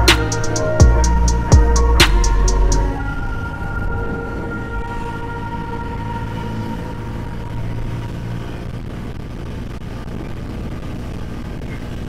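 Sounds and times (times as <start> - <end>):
wind and road noise: 0.0 - 12.0.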